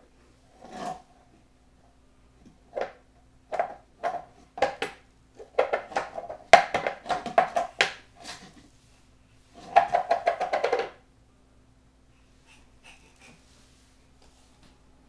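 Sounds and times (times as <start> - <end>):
bowl clattering on tile floor: 9.6 - 11.0.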